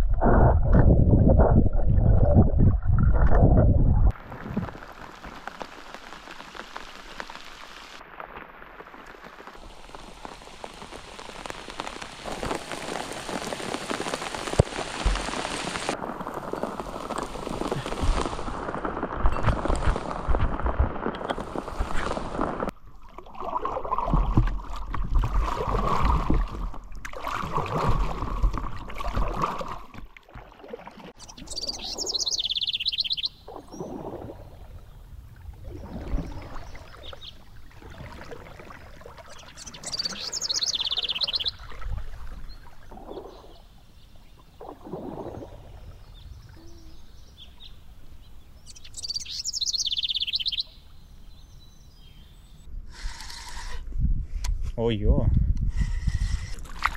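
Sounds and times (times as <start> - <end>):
low rumbling: 0.0 - 4.1
rain falling on river: 4.1 - 22.8, 35.6 - 51.0
birds chirping: 31.2 - 35.1, 39.2 - 41.8, 45.5 - 52.7.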